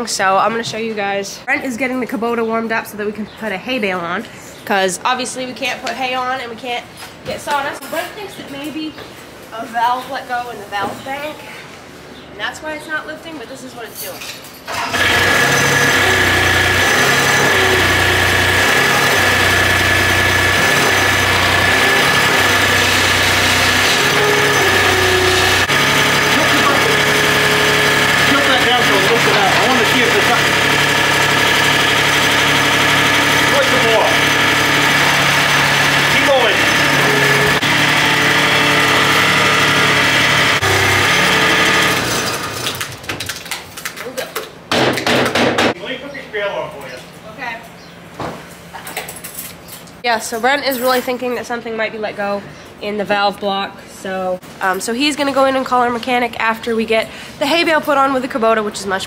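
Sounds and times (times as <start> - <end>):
skid steer engine running: 14.7 - 42.9.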